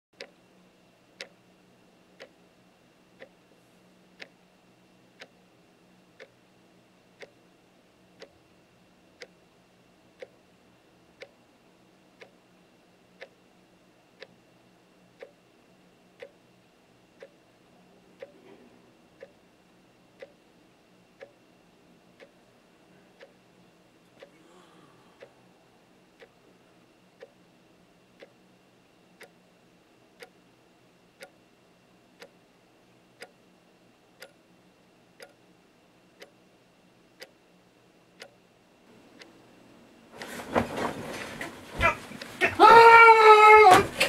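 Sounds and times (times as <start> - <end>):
wall clock ticking: 0.2 - 0.4, 1.2 - 1.4, 2.2 - 2.4, 3.2 - 3.4, 4.2 - 4.4, 5.1 - 5.4, 6.1 - 6.4, 7.2 - 7.4, 8.2 - 8.4, 9.2 - 9.4, 10.2 - 10.5, 11.2 - 11.4, 12.2 - 12.4, 13.1 - 13.5, 14.1 - 14.4, 15.1 - 15.5, 16.2 - 16.4, 17.1 - 17.4, 18.2 - 18.4, 19.1 - 19.5, 20.1 - 20.5, 21.2 - 21.5, 22.2 - 22.5, 23.2 - 23.5, 24.1 - 24.4, 26.1 - 26.4, 27.2 - 27.5, 28.2 - 28.4, 29.2 - 29.5, 30.2 - 30.4, 31.2 - 31.4, 32.2 - 32.5, 33.2 - 33.5, 34.1 - 34.4, 35.2 - 35.5, 36.1 - 36.5, 37.1 - 37.5, 38.2 - 38.4
bedding rustling: 40.2 - 42.5.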